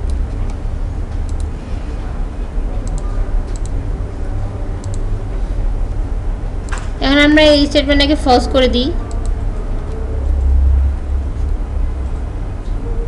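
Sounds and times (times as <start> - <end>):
keyboard and mouse clicks: 0.0 - 1.5, 2.8 - 3.8, 4.8 - 5.0
steady low hum: 0.0 - 13.0.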